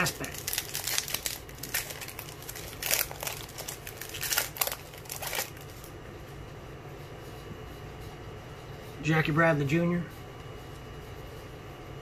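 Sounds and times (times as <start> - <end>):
foil wrapper crinkling: 0.0 - 5.9.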